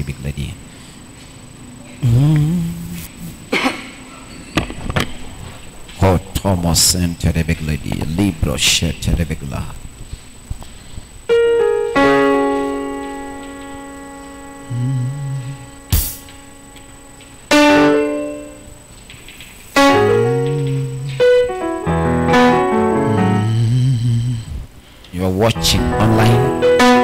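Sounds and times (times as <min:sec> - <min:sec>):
electric piano chords: 0:11.3 - 0:19.1, 0:19.7 - 0:24.4, 0:25.5 - 0:27.0.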